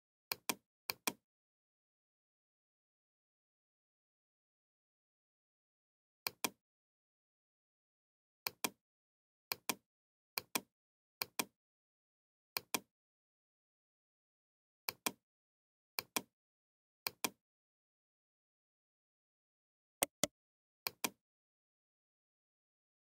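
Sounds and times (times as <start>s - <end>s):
mouse button double-clicks: 20.0s - 20.3s.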